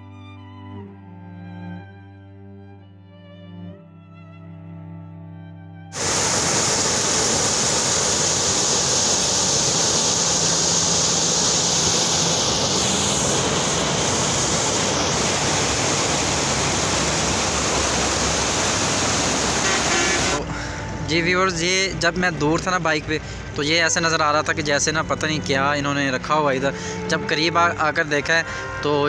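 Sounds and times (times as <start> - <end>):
water rushing in a canal: 6.0 - 20.9.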